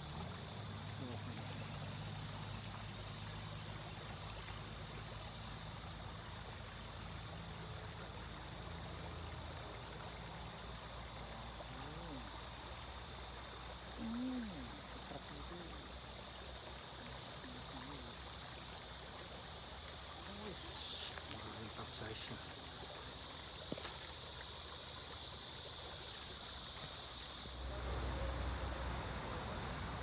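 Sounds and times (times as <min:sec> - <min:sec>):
waterfall rushing: 0:27.1 - 0:30.0.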